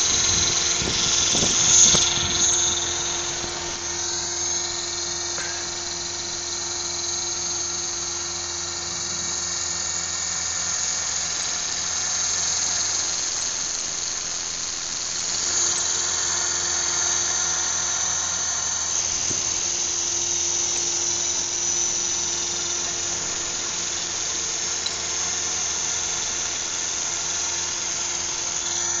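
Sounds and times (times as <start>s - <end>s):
toy helicopter rotor whine: 0.0s - 29.0s.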